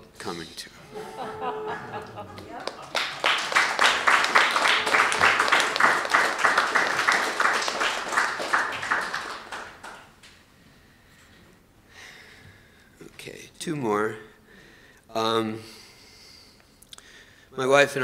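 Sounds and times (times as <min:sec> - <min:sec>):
audience applauding: 0:00.9 - 0:10.3.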